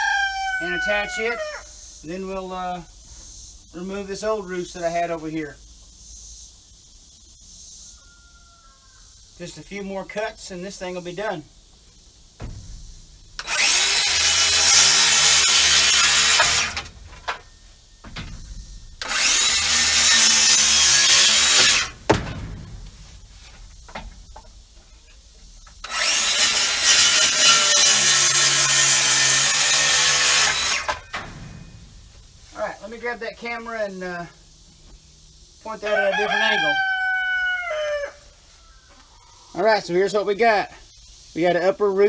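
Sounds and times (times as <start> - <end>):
sharp knock: 12.4 - 14.4, 21.6 - 23.2
circular saw cutting wood: 13.2 - 17.5, 18.3 - 22.6, 25.8 - 33.0
drill driving screws: 13.4 - 17.4, 19.0 - 22.0, 25.8 - 31.4.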